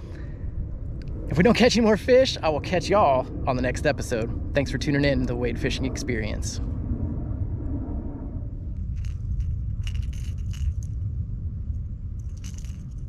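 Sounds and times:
wind buffeting microphone: 0.0 - 13.0
light clicks and jingles: 9.0 - 10.9, 12.2 - 13.0.

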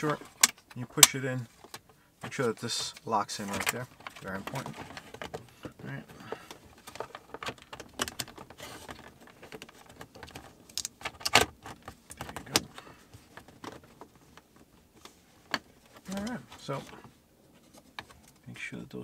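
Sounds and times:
plastic connectors clicking and rattling: 6.8 - 14.1.

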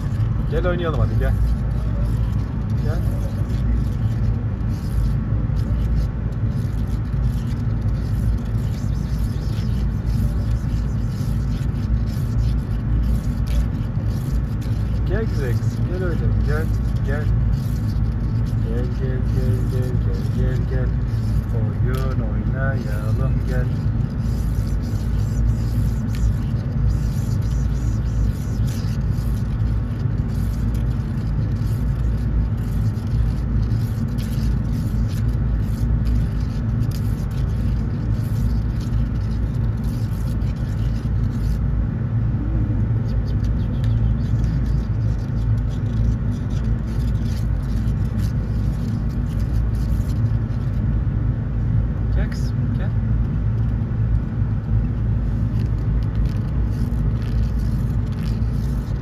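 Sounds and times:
vehicle engines rumbling: 0.0 - 10.8, 39.8 - 44.8.

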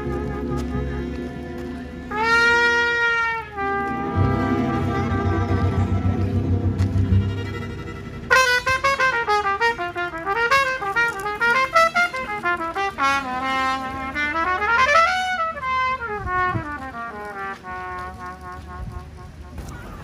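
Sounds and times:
violin: 0.0 - 12.7
jazz trumpet melody: 0.0 - 19.6
guitar: 3.7 - 8.9
upright bass: 4.0 - 8.8.

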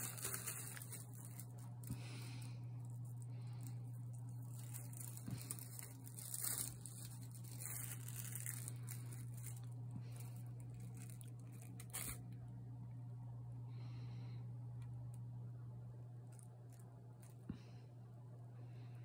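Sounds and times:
cardboard crinkling and tearing: 0.0 - 1.7, 4.4 - 12.2
steady low hum: 0.0 - 19.0.

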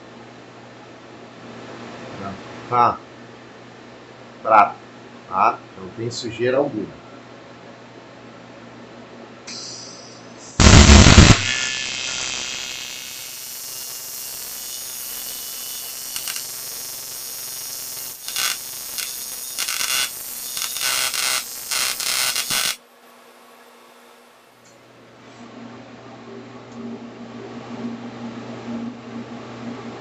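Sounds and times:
welding arc hissing buzz: 9.5 - 24.7.

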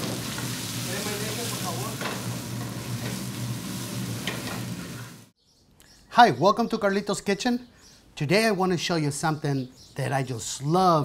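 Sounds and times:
vegetables sizzling in a pan: 0.0 - 5.3.

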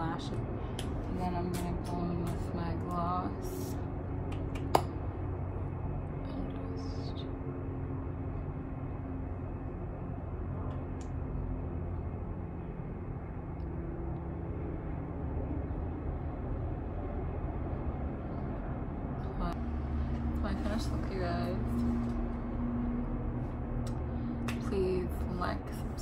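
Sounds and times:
low background rumble: 0.0 - 26.0.

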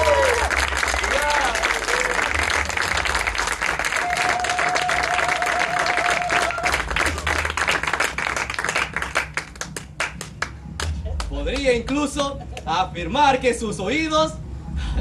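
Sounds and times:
audience applauding: 0.0 - 12.0.

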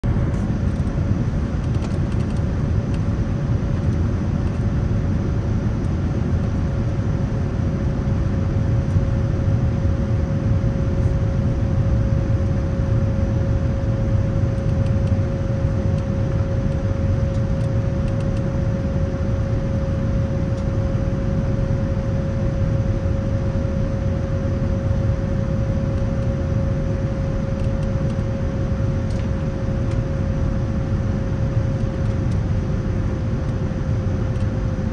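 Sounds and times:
airliner cabin rumble: 0.0 - 34.9
constant hum: 0.0 - 34.9.

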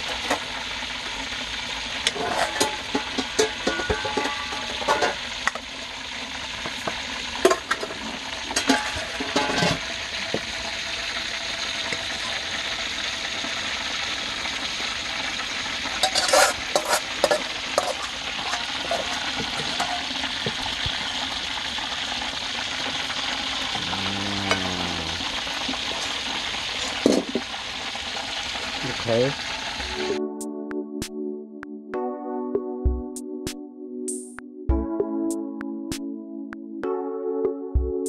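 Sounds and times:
sizzling hiss: 0.0 - 30.2
metal spoon scraping a pan: 2.0 - 5.6, 7.4 - 9.9, 16.0 - 20.4.

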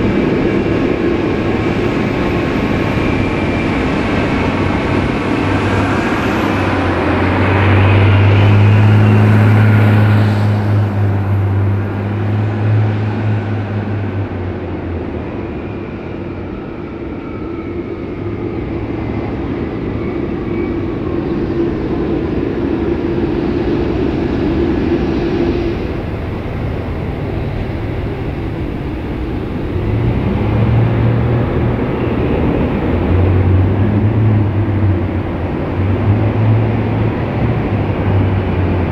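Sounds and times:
jet engines whining: 0.0 - 38.9
low jet rumble: 0.0 - 38.9.

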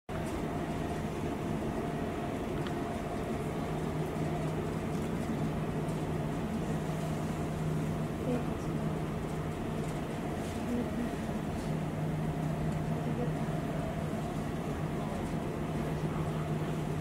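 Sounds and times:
constant low hum: 0.1 - 17.0.

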